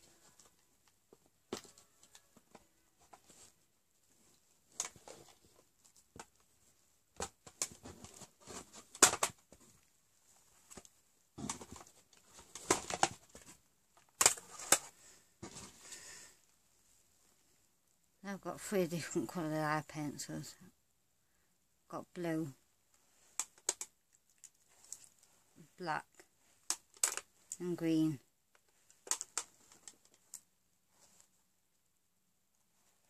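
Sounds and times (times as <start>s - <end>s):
makeup packaging rustling and clattering: 0.0s - 16.0s, 23.0s - 25.6s, 26.2s - 31.3s.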